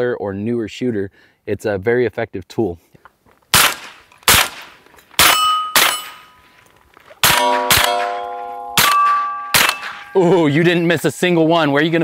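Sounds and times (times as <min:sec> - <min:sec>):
rifle shots: 0:03.5 - 0:06.3, 0:07.2 - 0:10.1
steel target ringing: 0:05.2 - 0:06.4, 0:07.2 - 0:10.9.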